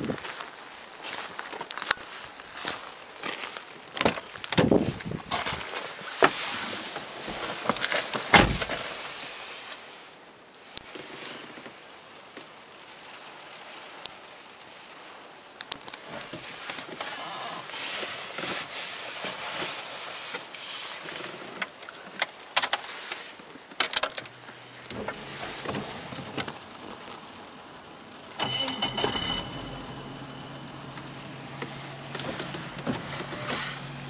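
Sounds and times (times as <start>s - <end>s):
low hum: 24.8s - 34.0s.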